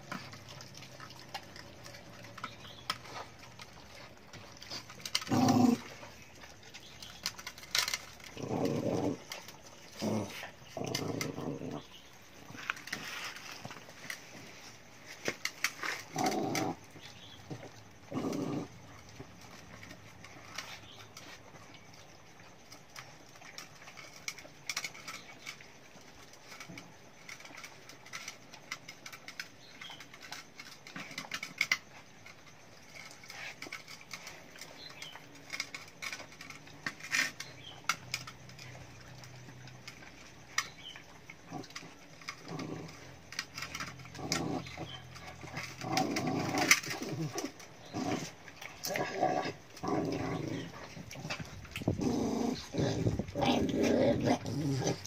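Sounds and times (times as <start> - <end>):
low dog sounds: 0.0 - 14.7
dogs eating from metal pans: 0.0 - 55.0.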